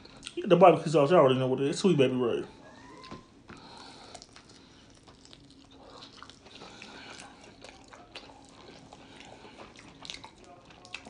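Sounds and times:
biting and chewing chicken wing: 2.9 - 11.0.

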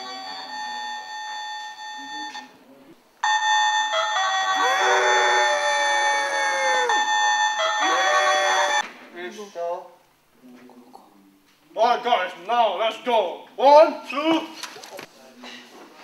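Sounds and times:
electronic toy tones: 6.5 - 8.8.

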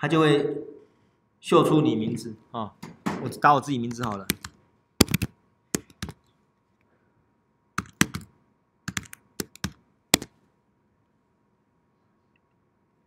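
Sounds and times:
computer keyboard typing: 3.9 - 6.2, 7.8 - 8.3, 8.9 - 10.3.

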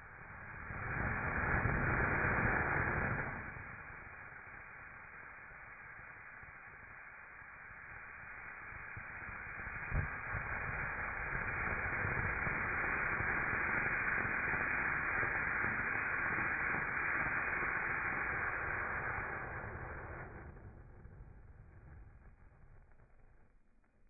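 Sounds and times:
firework fountain hissing: 0.0 - 23.5
low firework pop: 8.9 - 12.8.

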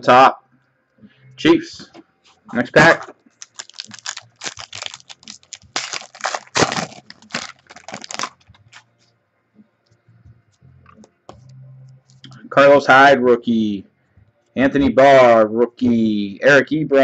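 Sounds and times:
cards being handled: 3.4 - 8.8
wrapper tearing and crinkling: 3.4 - 8.8.

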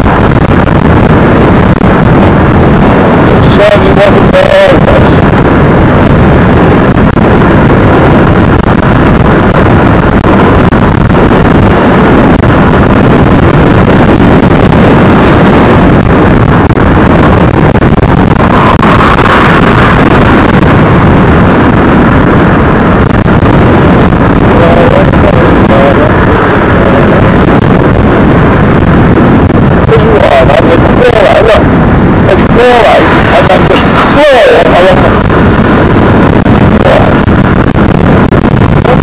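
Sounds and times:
wind rush over microphone: 0.0 - 39.0
motorcycle engine: 5.4 - 29.8.

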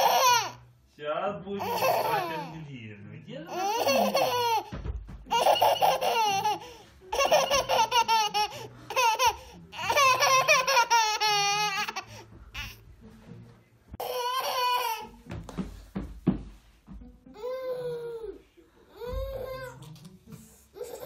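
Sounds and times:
baby girl giggling: 3.5 - 4.7, 5.3 - 12.8.

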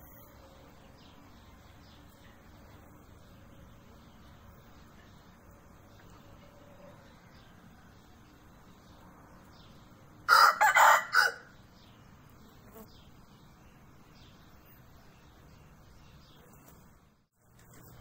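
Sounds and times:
rooster crowing: 10.3 - 11.5.

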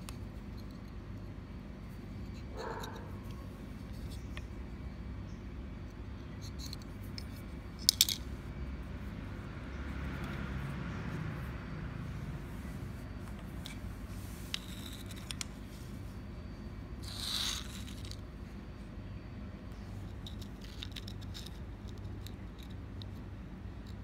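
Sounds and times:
low steady hum: 0.0 - 24.0
rustling scrape: 12.1 - 16.2.

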